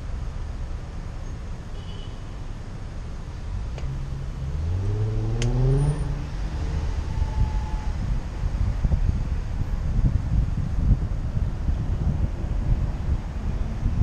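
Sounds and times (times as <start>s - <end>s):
slow city traffic rumble: 0.0s - 14.0s
vehicle engine revving: 3.8s - 8.2s.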